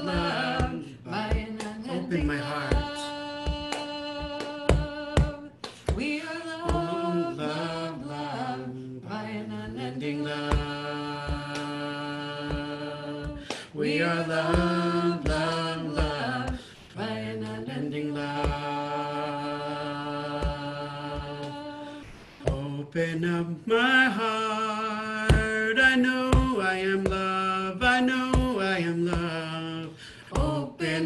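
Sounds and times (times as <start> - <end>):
steady percussive beat: 0.0 - 7.1, 9.7 - 16.6, 18.1 - 18.8, 25.2 - 25.7, 26.3 - 29.6
wordless chant-like singing: 0.0 - 31.0.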